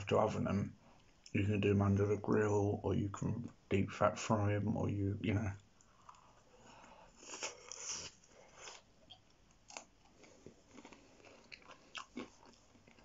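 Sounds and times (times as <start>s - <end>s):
person chewing fries: 7.1s - 13.0s.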